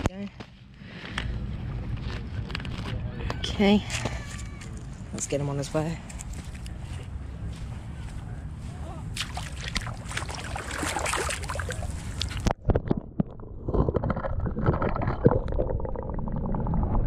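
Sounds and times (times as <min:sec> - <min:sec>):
water splashing and sloshing: 0:09.1 - 0:17.0
underwater gurgling: 0:09.9 - 0:17.0.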